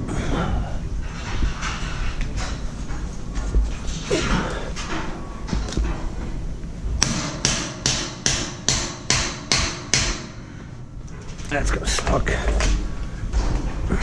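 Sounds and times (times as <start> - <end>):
hammer striking steel scaffolding: 7.0 - 10.6.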